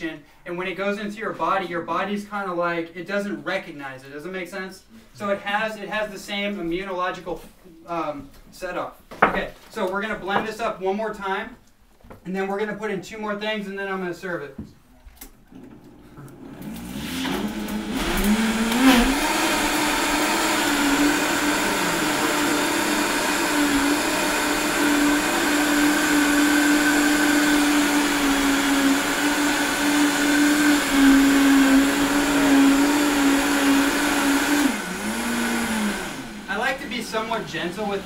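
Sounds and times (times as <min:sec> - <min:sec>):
blender motor running: 0:15.6 - 0:38.0.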